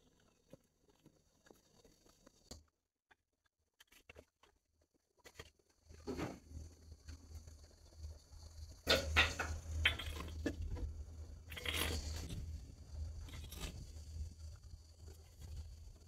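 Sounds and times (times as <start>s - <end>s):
hoe scraping through stony soil: 9.9s - 16.0s.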